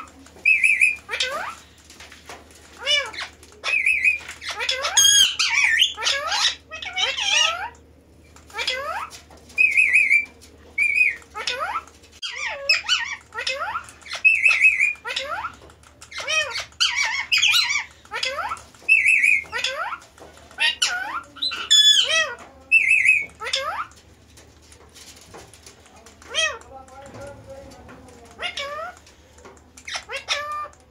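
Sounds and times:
parakeets squawking: 0.0 - 1.8, 2.7 - 7.8, 8.4 - 24.0, 26.2 - 26.8, 28.2 - 30.9.

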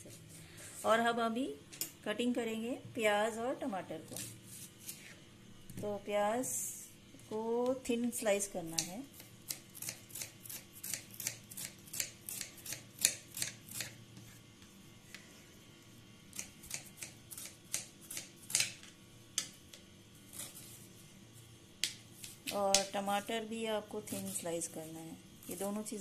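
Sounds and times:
knife slicing onion on board: 8.6 - 14.4, 16.3 - 19.7, 20.3 - 20.8.

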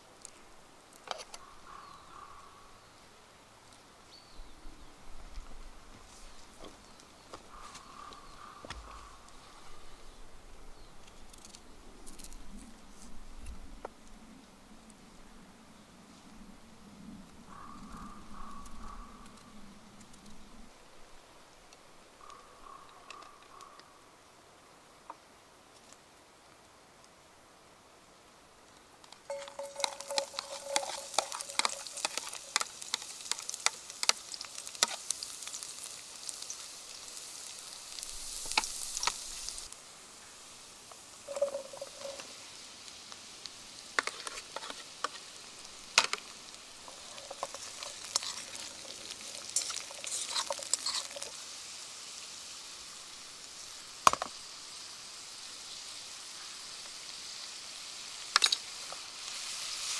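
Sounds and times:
utensil scraping a pan: 29.3 - 35.6, 41.3 - 42.4, 44.0 - 45.3, 46.8 - 51.4
vegetables sizzling in a frying pan: 29.3 - 59.9.

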